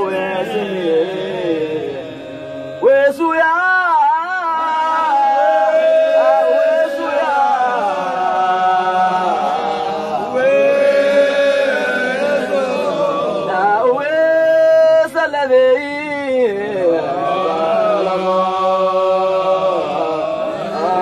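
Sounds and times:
men chanting unaccompanied: 0.0 - 21.0.

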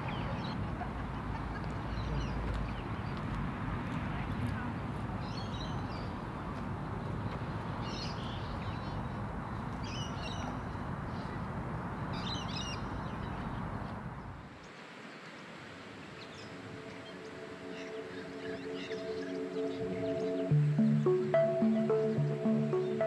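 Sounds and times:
chirpy bird calls: 16.3 - 23.0
soft music with held tones: 16.4 - 23.0.

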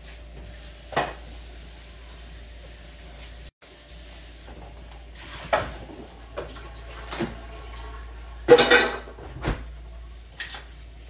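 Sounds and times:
food sizzling in a pan: 0.0 - 5.4.

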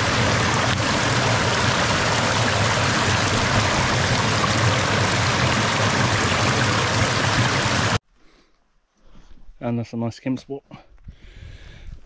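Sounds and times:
bottle filling in water: 0.0 - 8.0
stream rushing over rocks: 0.0 - 8.0.

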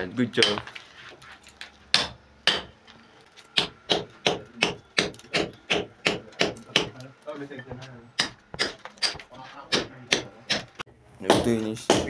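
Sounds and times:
hammer striking chisel on masonry: 0.4 - 0.7, 1.9 - 2.8, 3.5 - 7.0, 7.6 - 12.0.

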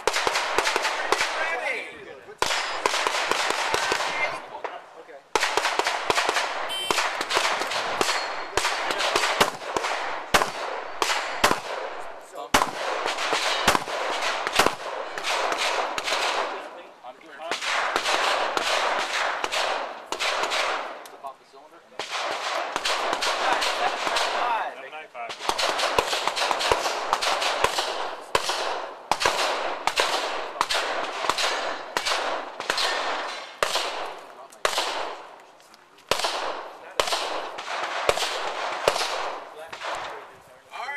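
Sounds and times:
gunshot echo: 0.0 - 1.6, 2.4 - 16.7, 17.4 - 21.0, 22.0 - 24.7, 25.3 - 35.3, 36.1 - 40.3
pistol shots: 0.0 - 1.6, 2.4 - 16.7, 17.4 - 21.2, 22.0 - 24.7, 25.3 - 35.4, 36.0 - 40.3
handgun shots with echo: 5.4 - 11.9, 25.4 - 35.2.

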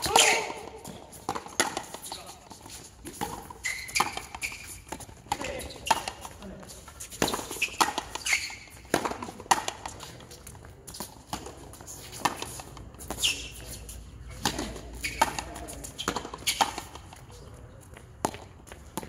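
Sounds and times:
racket striking ball: 0.0 - 2.3, 7.2 - 10.1, 14.4 - 17.0.

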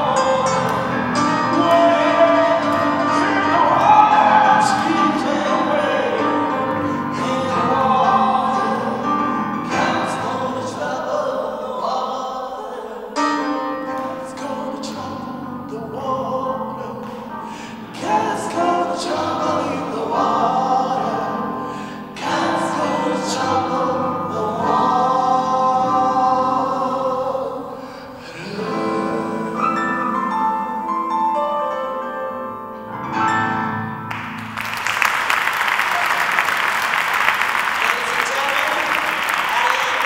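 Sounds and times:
women singing in harmony: 1.6 - 13.1, 22.2 - 30.3
audience applause: 34.1 - 40.0.

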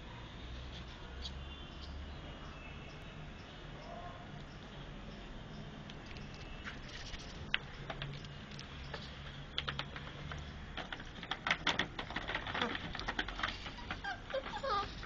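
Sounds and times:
claws clicking on hard floor: 6.1 - 15.0
puppies scuffling: 6.3 - 15.0.

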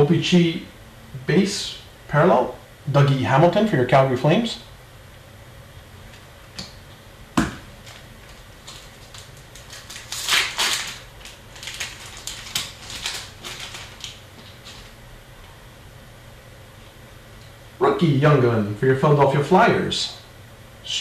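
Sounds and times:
foil wrapper crinkling and tearing: 7.8 - 15.0.

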